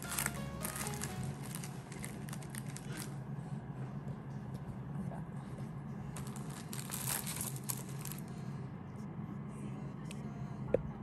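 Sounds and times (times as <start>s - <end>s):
paper sheet rustling and scraping: 0.0s - 3.1s, 6.2s - 8.3s
paper crackles: 0.0s - 3.2s, 6.2s - 8.3s
low background hum: 0.0s - 11.0s.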